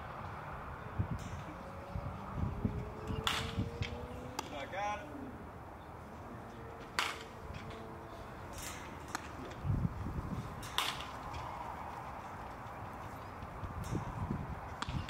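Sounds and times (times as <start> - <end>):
open-air background noise: 0.0 - 15.0
bat cracking baseball: 3.2 - 4.6, 6.8 - 7.8, 10.6 - 11.5, 14.8 - 15.0.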